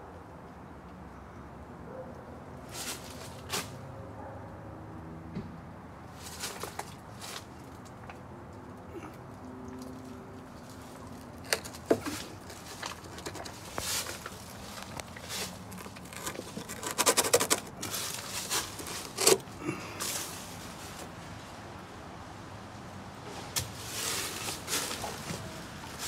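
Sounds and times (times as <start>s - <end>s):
hand scraping wooden beam: 6.2s - 7.6s, 10.5s - 21.1s, 23.5s - 26.0s.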